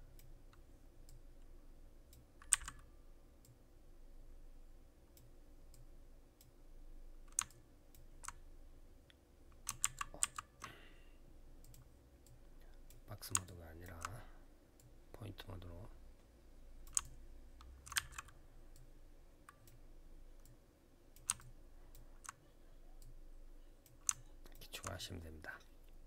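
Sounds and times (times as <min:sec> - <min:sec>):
faint room hum: 0:00.0 - 0:26.0
mouse and keyboard clicks: 0:02.4 - 0:02.9, 0:07.3 - 0:07.6, 0:16.9 - 0:18.4, 0:21.2 - 0:22.4, 0:23.9 - 0:24.9.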